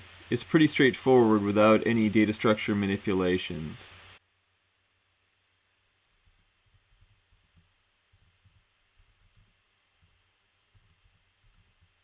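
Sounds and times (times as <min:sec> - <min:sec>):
typing on computer keyboard: 0:06.1 - 0:12.0.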